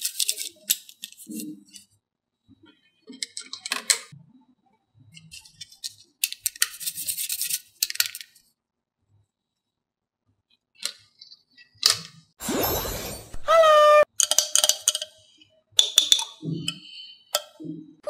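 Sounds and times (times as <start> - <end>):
wooden sticks clicking and rattling: 0.0 - 1.8, 14.2 - 15.2.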